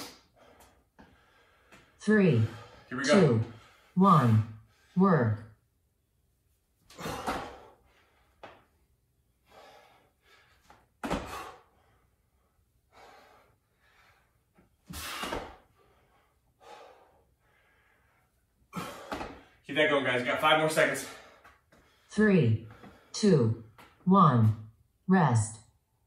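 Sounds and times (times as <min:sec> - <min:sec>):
man breathing hard: 0:00.0 - 0:05.0, 0:06.9 - 0:08.6, 0:09.3 - 0:19.6
feet landing on wooden floor: 0:07.0 - 0:07.7, 0:11.0 - 0:11.6, 0:14.9 - 0:15.6, 0:18.9 - 0:19.5.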